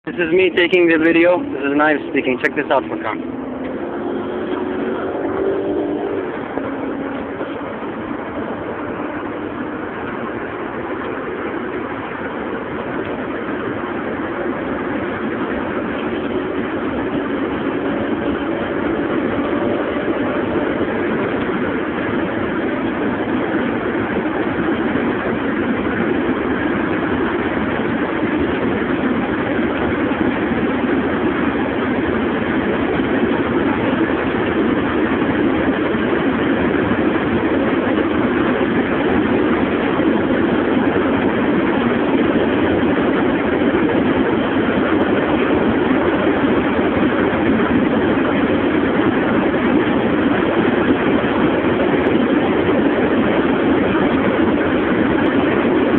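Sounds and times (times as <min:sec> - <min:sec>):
car cabin road and wind noise: 0:00.0 - 0:55.9.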